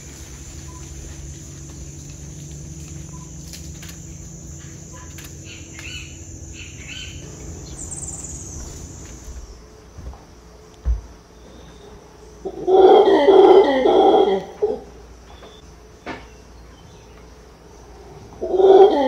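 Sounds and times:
birds chirping: 0.0s - 10.2s
low steady rumble: 0.0s - 12.6s
high-pitched insect drone: 0.0s - 18.9s.

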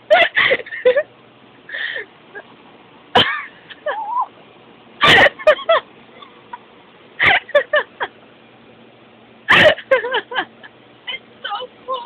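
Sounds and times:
person laughing: 0.1s - 1.1s, 5.0s - 6.6s, 7.2s - 8.2s, 9.5s - 10.7s.

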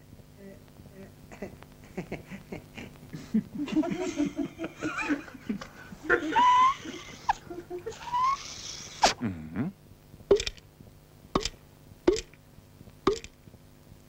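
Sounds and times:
snicker-like chattering: 1.3s - 9.2s.

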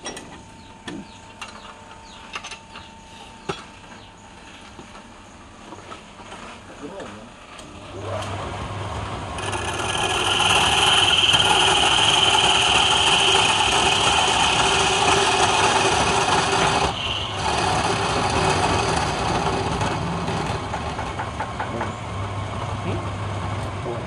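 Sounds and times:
lathe motor humming: 7.6s - 24.0s
chisel scraping spinning wood: 7.8s - 22.0s.

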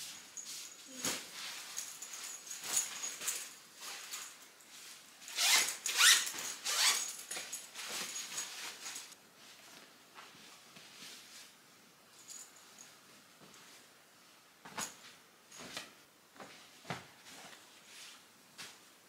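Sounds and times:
clothes rustling: 0.0s - 19.0s
zipper being pulled: 5.3s - 7.2s.

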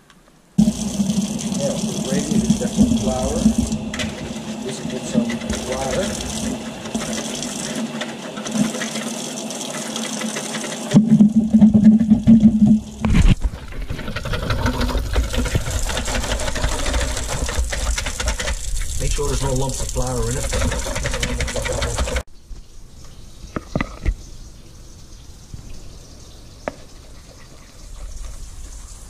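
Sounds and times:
wire whisk beating mixture: 0.6s - 22.3s.

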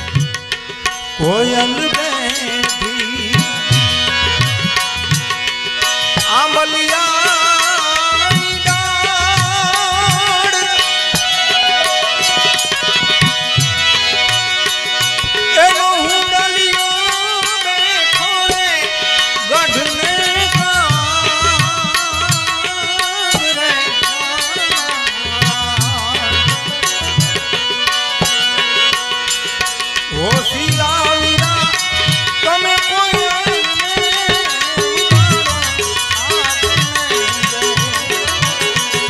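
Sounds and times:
wavering folk melody: 8.2s - 21.4s
hand-drum beats: 31.4s - 39.0s.

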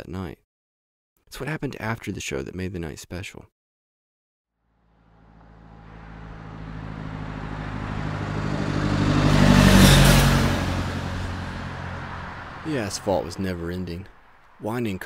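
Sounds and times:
car driving past: 4.7s - 15.0s.

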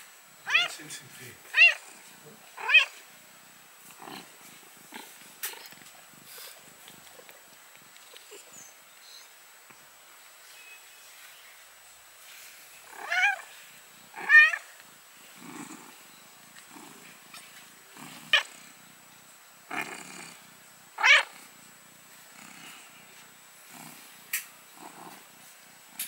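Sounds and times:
cats crying out: 0.4s - 2.0s, 2.6s - 3.0s, 12.8s - 13.5s, 14.1s - 15.9s, 17.3s - 18.7s, 21.0s - 21.5s.

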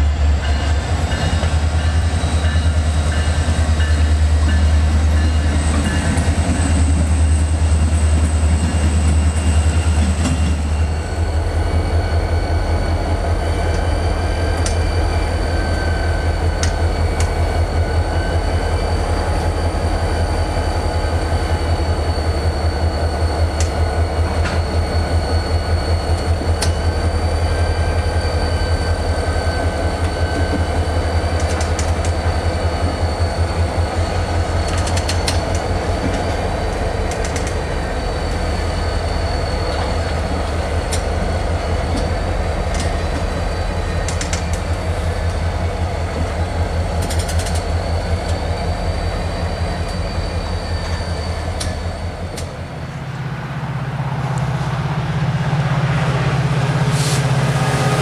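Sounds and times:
diesel locomotives accelerating: 0.0s - 58.0s
wheels clicking over rail joints: 29.9s - 33.0s, 34.4s - 37.7s, 39.7s - 43.4s, 44.0s - 48.4s
sharp clicks: 47.0s - 47.7s.

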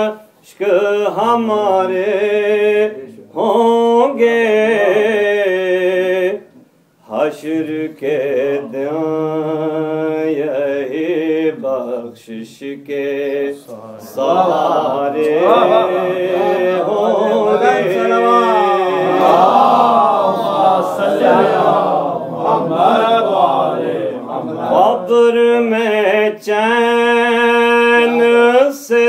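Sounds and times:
man chanting: 0.0s - 6.4s, 7.0s - 29.0s
group of voices chanting: 13.9s - 25.3s.

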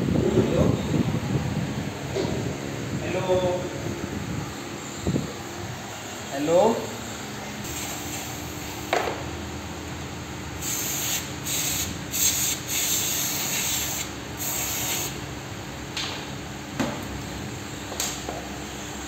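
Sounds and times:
aerosol spray hissing: 10.6s - 15.2s.

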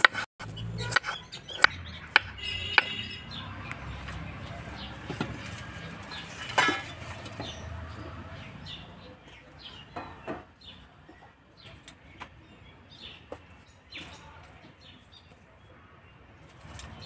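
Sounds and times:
knife chopping on wooden board: 0.0s - 0.2s
firewood sticks clattering: 5.0s - 7.6s.

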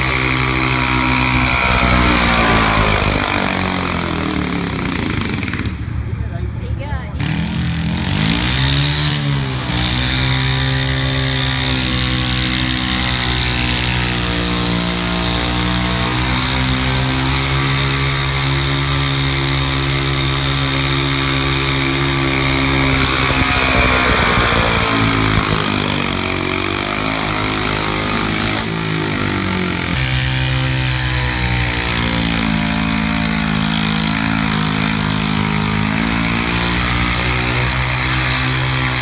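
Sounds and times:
tractor engine high-revving drone: 0.0s - 39.0s.

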